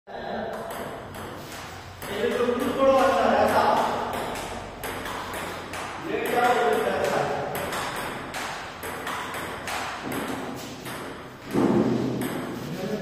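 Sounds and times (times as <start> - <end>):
table tennis ball pinging: 0.4 - 12.7
person talking: 6.0 - 7.5.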